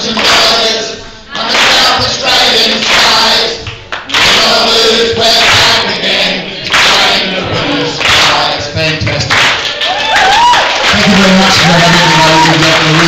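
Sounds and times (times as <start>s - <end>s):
people clapping: 0.0s - 0.8s, 1.4s - 13.0s
group singing: 0.0s - 9.7s.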